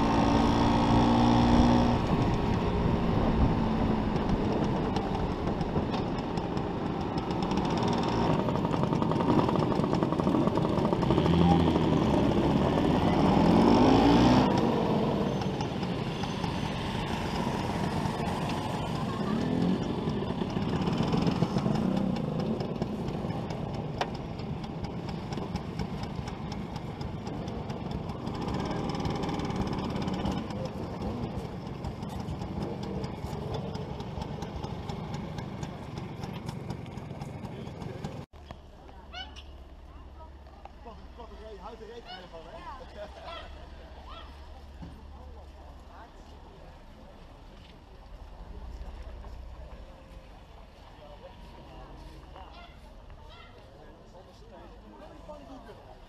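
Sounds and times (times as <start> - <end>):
scooter two-stroke engine running: 0.0 - 38.3.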